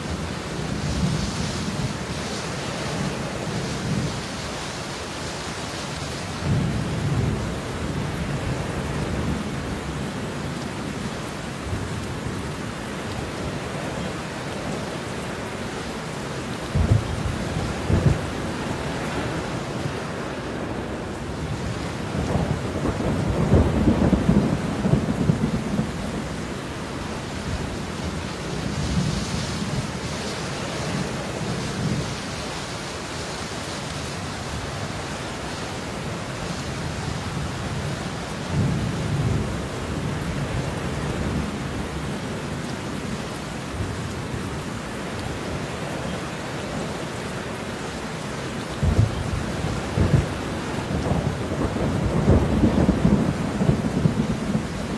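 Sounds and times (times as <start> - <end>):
steady rain hissing: 0.0 - 54.9
rolling thunder: 16.7 - 26.5, 48.8 - 54.9.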